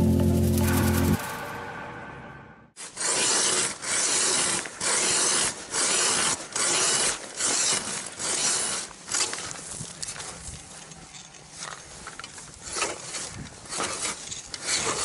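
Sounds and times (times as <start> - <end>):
ice auger scraping: 2.8 - 9.6, 12.6 - 15.0.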